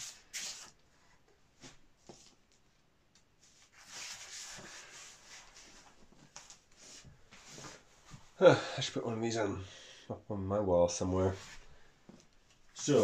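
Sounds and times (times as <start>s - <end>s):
paper sliding and rustling: 0.0s - 0.8s, 3.4s - 7.8s.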